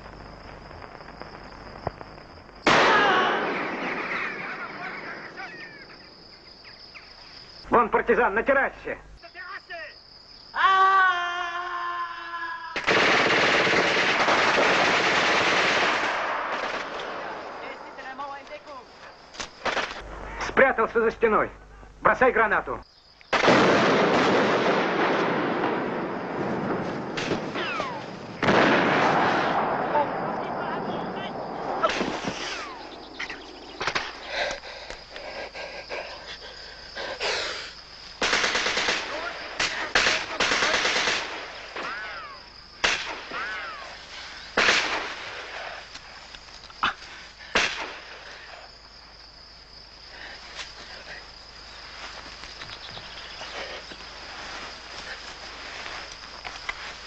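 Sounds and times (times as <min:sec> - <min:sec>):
single gunshots: 0:02.6 - 0:04.9, 0:23.3 - 0:30.4, 0:31.3 - 0:33.0, 0:38.2 - 0:42.0, 0:42.8 - 0:43.4, 0:44.6 - 0:45.4, 0:47.5 - 0:48.1
machine-gun fire: 0:12.8 - 0:17.0, 0:23.3 - 0:26.0, 0:28.4 - 0:29.9, 0:38.2 - 0:41.5.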